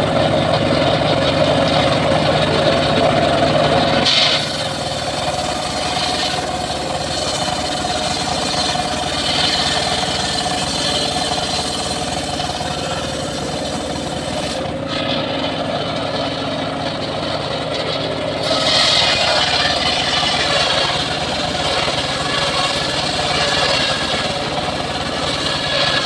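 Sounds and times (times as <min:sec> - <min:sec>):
saw blade cutting wood: 0:00.0 - 0:26.0
sawmill machine drone: 0:00.0 - 0:26.0.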